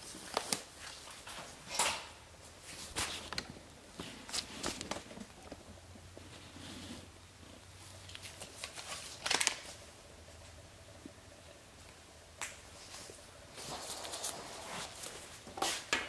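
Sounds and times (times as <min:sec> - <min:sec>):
soft clicks and rustles: 0:00.0 - 0:09.8.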